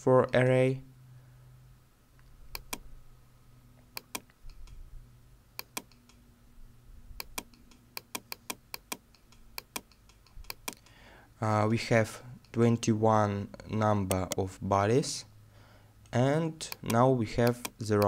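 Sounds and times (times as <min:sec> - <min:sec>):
faint steady hum: 0:00.0 - 0:18.0
computer mouse clicks: 0:02.2 - 0:02.8, 0:03.9 - 0:04.8, 0:05.6 - 0:06.2, 0:07.2 - 0:10.9, 0:16.7 - 0:18.0.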